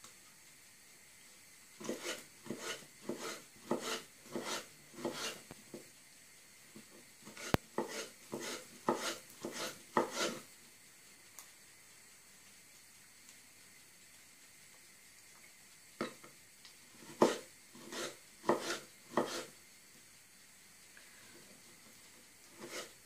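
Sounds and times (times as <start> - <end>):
knife chopping on wooden board: 1.8 - 5.4, 7.3 - 10.4, 17.0 - 19.5, 22.6 - 22.9.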